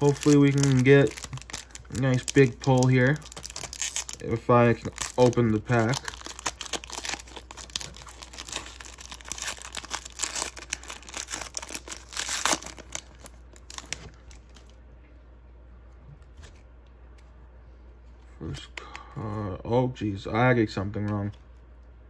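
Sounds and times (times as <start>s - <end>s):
cards rustling: 0.0s - 14.8s
foil wrapper crinkling: 0.0s - 14.8s.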